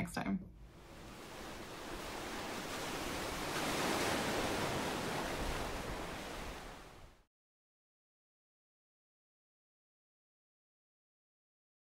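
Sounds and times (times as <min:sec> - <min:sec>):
ocean surf washing on shore: 0:00.6 - 0:07.3.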